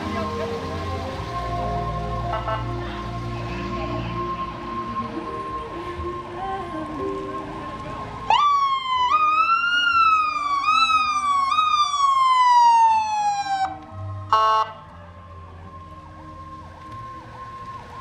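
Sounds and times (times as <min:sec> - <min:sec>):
electronic siren: 0:08.4 - 0:14.7.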